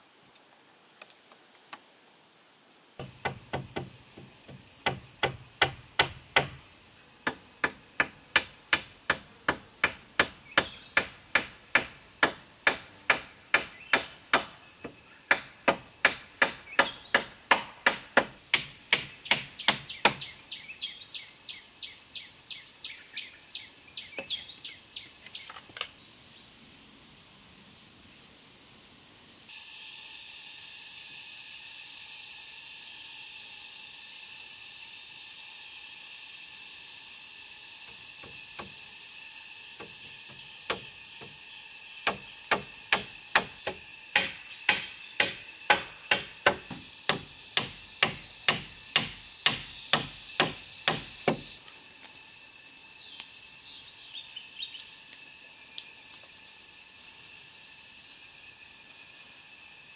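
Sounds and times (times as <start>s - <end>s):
hammering on wooden poles: 3.0s - 6.6s, 7.2s - 20.3s, 37.9s - 38.8s, 39.8s - 41.4s, 42.0s - 51.6s.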